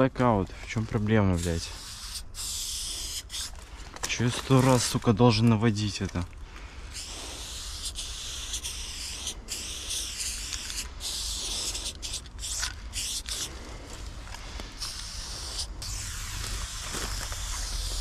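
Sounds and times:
spray-paint can hissing: 1.4s - 3.5s, 6.9s - 13.5s, 14.8s - 18.0s.

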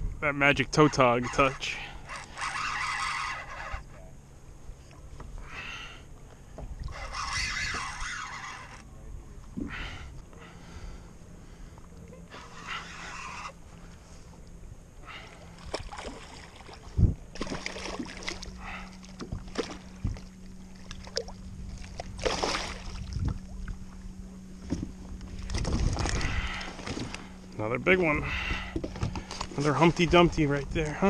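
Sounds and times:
low hum: 0.0s - 31.0s
water sloshing: 6.1s - 31.0s
fish thrashing and splashing: 15.2s - 23.2s, 25.4s - 27.4s.

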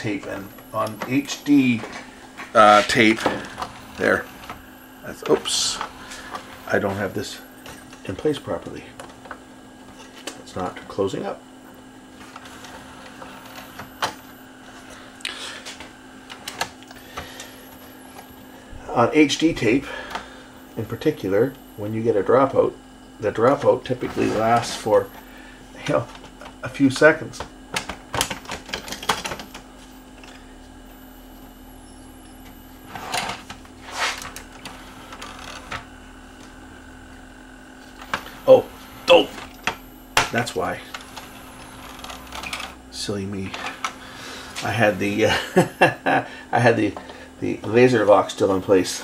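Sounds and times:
steady low hum: 0.0s - 49.0s
plastic parts sliding and scraping: 0.2s - 4.6s, 5.2s - 8.0s, 12.2s - 14.1s, 24.0s - 24.9s, 32.8s - 35.9s, 40.4s - 42.8s.

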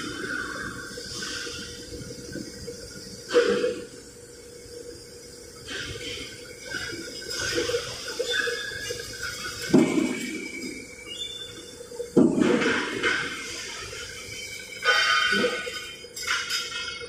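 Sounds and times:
faint machine hum: 0.0s - 17.0s
metal plates clanking: 12.2s - 17.0s.

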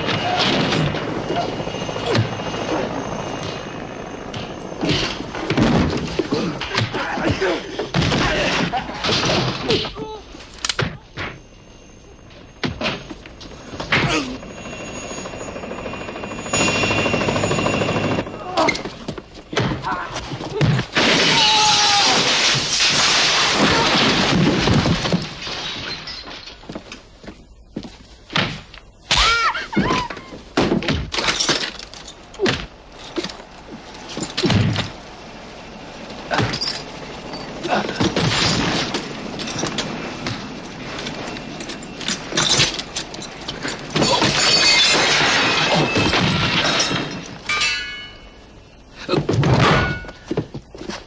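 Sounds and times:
thuds of blows and bodies: 4.3s - 10.1s, 22.2s - 25.6s, 28.3s - 31.4s, 32.4s - 35.0s, 49.0s - 51.0s
things breaking: 18.7s - 26.7s, 36.3s - 48.5s.

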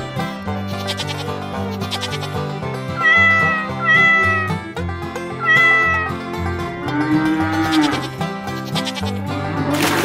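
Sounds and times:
background music: 0.0s - 10.0s
cat meowing: 3.0s - 4.6s, 5.4s - 6.2s
low steady animal call: 3.0s - 4.6s.

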